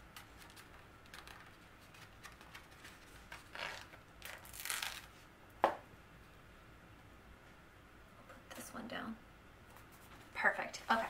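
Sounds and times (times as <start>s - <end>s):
sticker sheets rustling: 0.0s - 5.2s.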